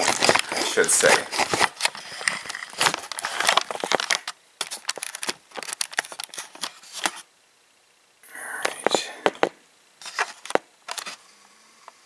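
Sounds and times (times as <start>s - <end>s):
camera being handled: 0.0s - 7.2s, 10.0s - 11.2s.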